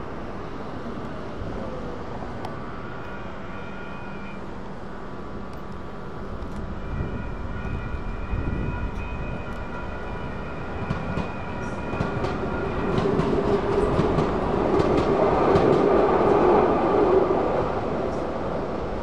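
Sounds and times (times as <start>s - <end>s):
light rail train passing: 0.0s - 19.0s
crossing warning bells ringing: 5.8s - 14.8s.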